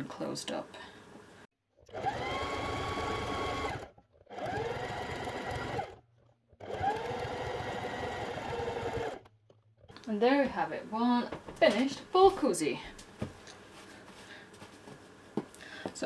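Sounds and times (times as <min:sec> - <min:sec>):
sewing machine stitching: 0:01.8 - 0:09.3.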